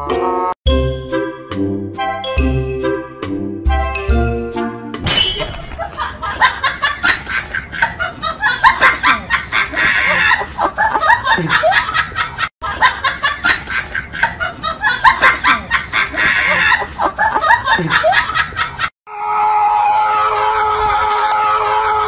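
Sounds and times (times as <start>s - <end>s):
people laughing: 5.8s - 18.9s.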